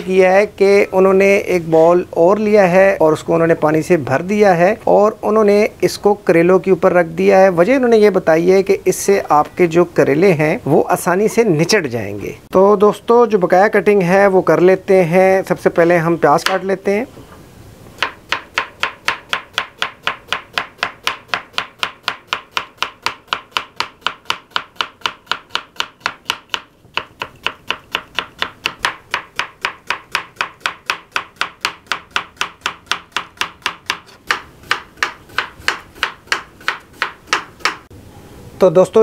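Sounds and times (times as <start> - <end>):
knife chopping on wooden board: 16.4 - 16.6, 18.0 - 37.9.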